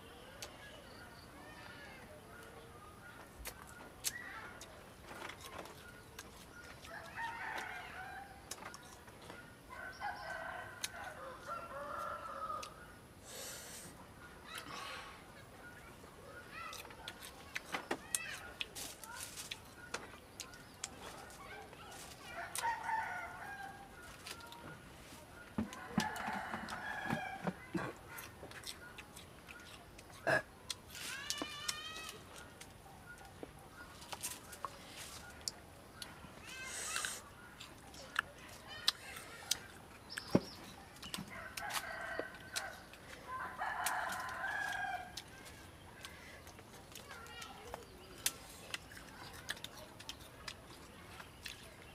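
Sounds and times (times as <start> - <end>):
rooster crowing: 22.5 - 24.0, 25.6 - 27.5, 43.4 - 45.2
fruit clicking and tapping: 25.6 - 30.1, 38.1 - 43.0.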